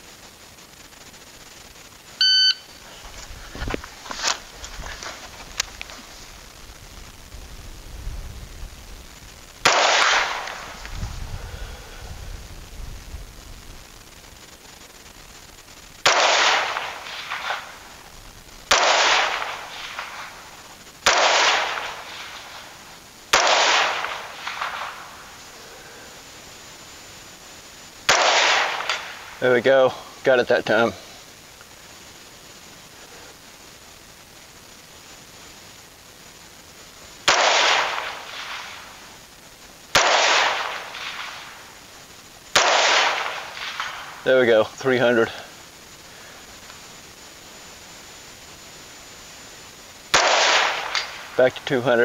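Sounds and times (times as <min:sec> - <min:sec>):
rifle shots with echo: 0:09.6 - 0:10.8, 0:16.0 - 0:17.8, 0:18.7 - 0:20.4, 0:21.0 - 0:25.1, 0:28.1 - 0:29.4, 0:37.2 - 0:39.0, 0:39.9 - 0:41.6, 0:42.5 - 0:44.3, 0:50.1 - 0:51.4.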